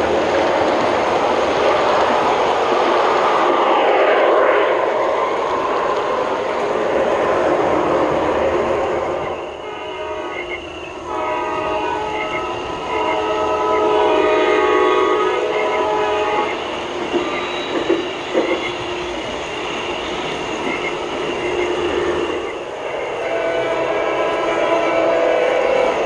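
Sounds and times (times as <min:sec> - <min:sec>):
model train horn chord: 0:09.6 - 0:10.5, 0:11.1 - 0:16.5, 0:23.2 - 0:26.0
wheels clicking over track: 0:16.8 - 0:21.9.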